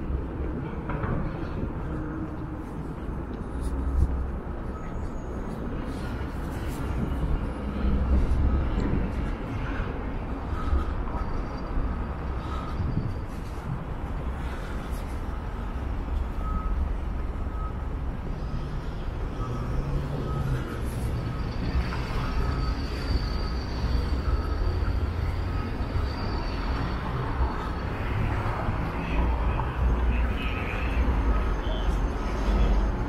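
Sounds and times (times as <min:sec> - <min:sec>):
wind rumbling on microphone: 0:00.0 - 0:19.4
street traffic passing: 0:00.0 - 0:33.0.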